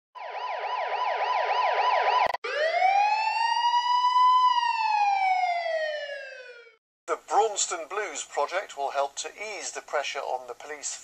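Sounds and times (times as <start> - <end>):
siren wail: 0.2 - 6.8
siren yelp: 0.2 - 6.8.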